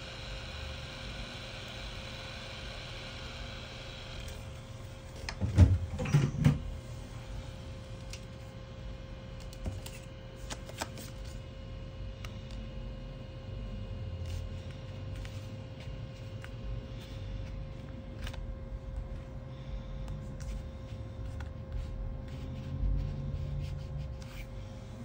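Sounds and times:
heat gun whine: 0.0s - 8.0s.

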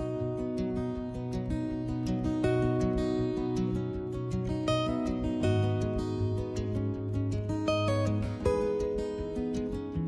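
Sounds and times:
plucked acoustic guitar: 0.0s - 10.0s.

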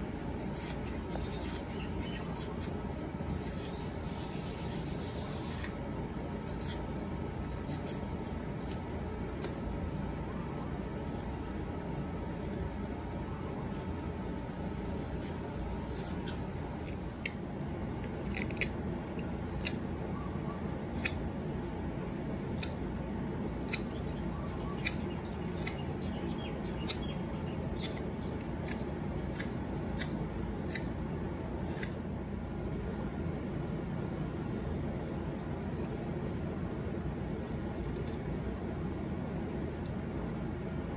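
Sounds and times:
knife carving wood: 0.1s - 11.3s, 13.6s - 19.9s, 20.8s - 21.3s, 22.2s - 23.0s, 23.6s - 32.0s, 34.2s - 36.2s, 37.2s - 38.3s.

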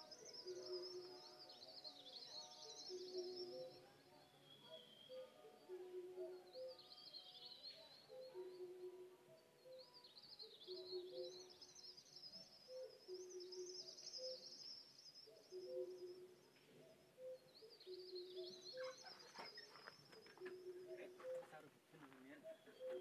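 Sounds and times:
high bird twittering: 17.2s - 21.6s.

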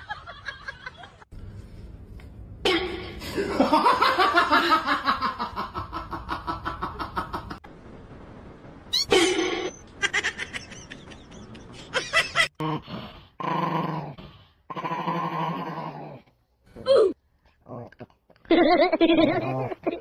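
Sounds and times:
small dog growling and snarling: 12.6s - 16.4s.

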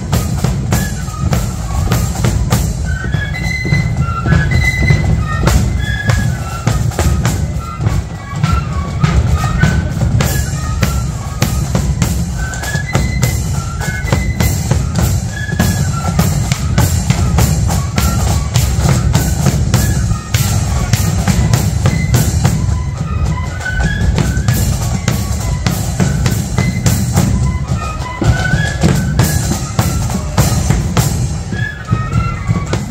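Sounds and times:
flutes playing melody: 0.0s - 32.9s
rapid snare drumming: 0.0s - 32.9s.

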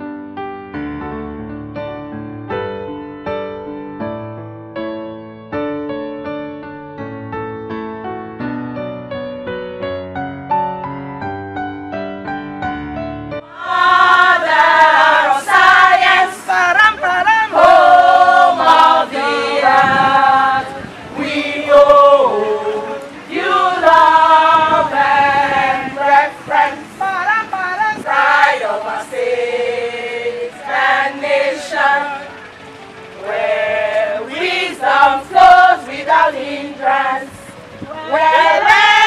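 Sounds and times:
choir singing loudly: 13.4s - 32.6s, 33.2s - 39.0s.

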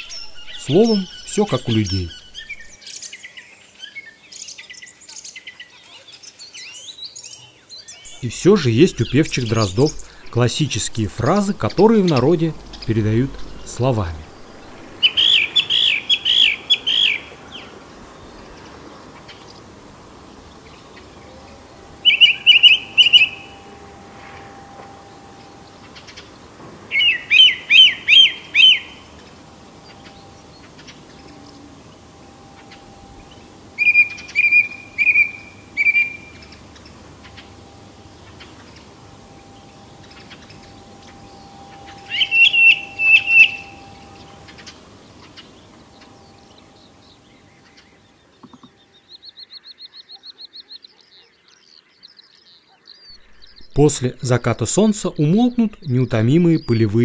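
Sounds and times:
song thrush singing: 0.0s - 57.0s
bird short high notes: 8.1s - 17.7s, 20.8s - 47.2s.

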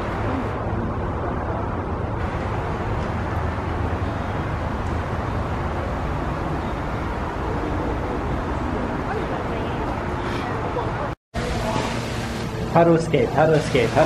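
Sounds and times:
low rumbling background noise: 0.0s - 14.0s.

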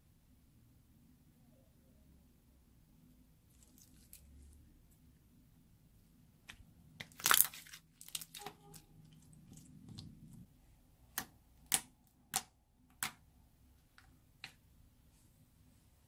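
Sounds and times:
slime crackling: 3.4s - 5.0s, 6.4s - 13.2s
slime popping: 6.5s - 10.4s.

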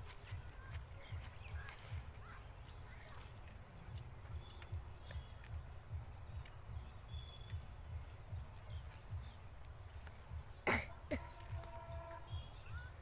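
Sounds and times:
faint ticks: 0.0s - 10.5s
high-pitched insect drone: 0.1s - 13.0s.

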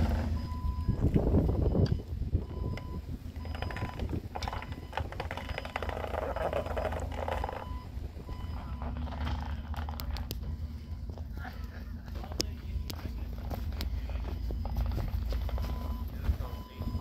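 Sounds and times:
forklift engine rumbling: 0.0s - 17.0s.

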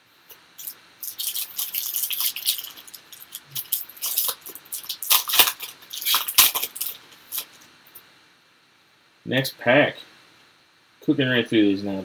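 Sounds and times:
trading cards rustling and scraping: 0.6s - 7.7s.

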